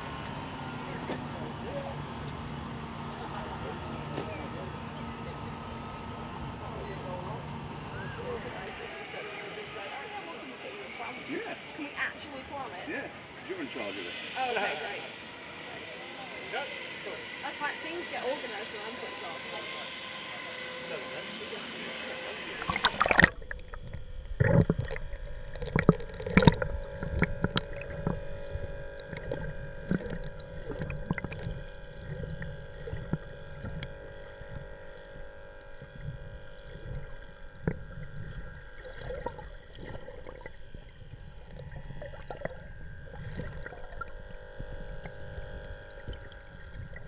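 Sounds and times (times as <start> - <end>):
faint held whine: 0.0 - 47.0
steady underwater hum: 0.0 - 47.0
underwater bubbling: 21.9 - 47.0.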